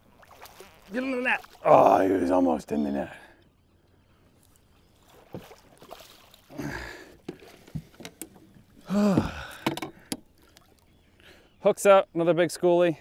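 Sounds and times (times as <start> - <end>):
person grunting: 8.9 - 9.5.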